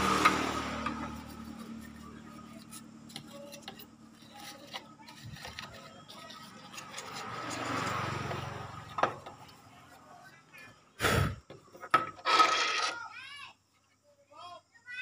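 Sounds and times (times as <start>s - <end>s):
paintbrush scrubbing circuit board: 0.2s - 10.2s.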